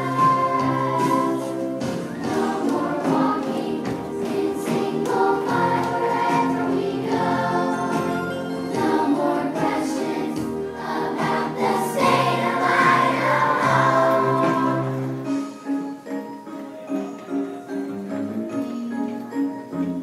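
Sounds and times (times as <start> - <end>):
children's choir singing: 0.0 - 15.5
backing music: 0.0 - 20.0.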